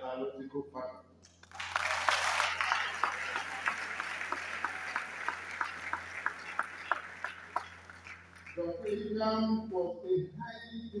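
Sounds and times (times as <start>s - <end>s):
rhythmic clapping: 1.2s - 9.4s
audience applauding: 1.4s - 8.9s.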